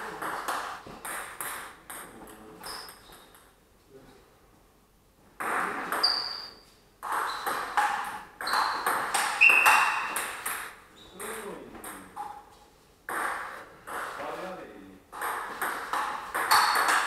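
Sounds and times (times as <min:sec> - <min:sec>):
table tennis ball hitting bats: 0:00.0 - 0:03.5, 0:05.4 - 0:12.4, 0:13.1 - 0:14.2, 0:15.1 - 0:17.0
ball bouncing on table: 0:05.4 - 0:12.4, 0:15.1 - 0:17.0.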